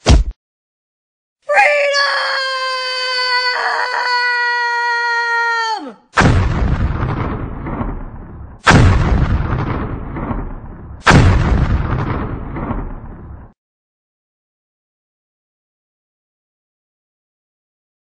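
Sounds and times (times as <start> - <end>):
heavy booms: 6.2 - 13.6.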